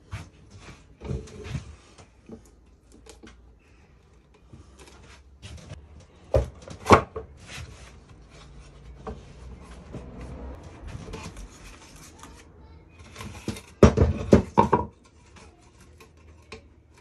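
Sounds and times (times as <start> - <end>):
wood scraping on wood: 4.4 - 17.0.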